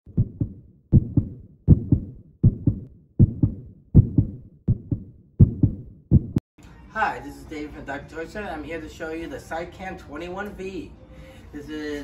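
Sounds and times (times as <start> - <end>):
heartbeat double thump: 0.1 - 6.4.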